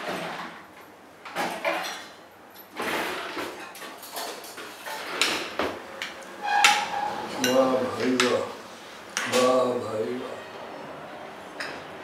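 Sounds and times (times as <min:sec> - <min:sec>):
tableware scraping: 0:02.8 - 0:08.4.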